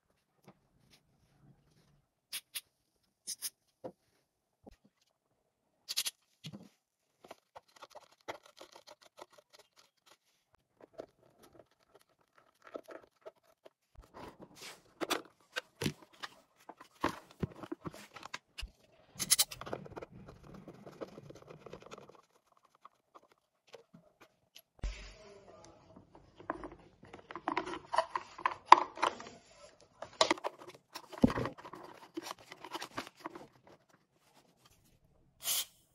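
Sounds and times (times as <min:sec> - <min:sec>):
handling plastic housing: 0:30.0 - 0:34.0.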